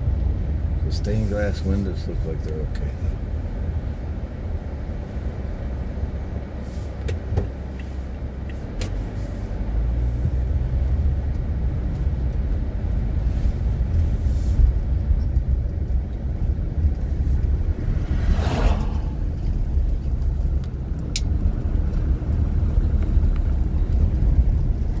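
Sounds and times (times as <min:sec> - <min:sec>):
car engine rumble: 0:00.0 - 0:25.0
car road noise: 0:00.0 - 0:25.0
passing truck rush: 0:16.2 - 0:22.9.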